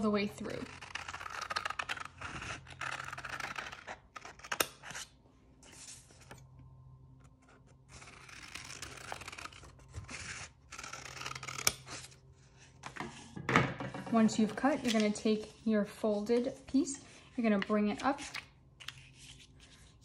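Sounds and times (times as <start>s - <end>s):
scissors snipping paper: 0.2s - 5.1s.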